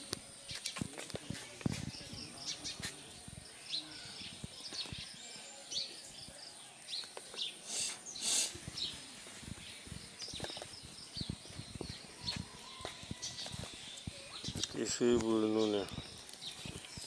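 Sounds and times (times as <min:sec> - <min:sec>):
small birds chirping: 0:00.0 - 0:17.0
short hissing bursts: 0:07.6 - 0:08.9.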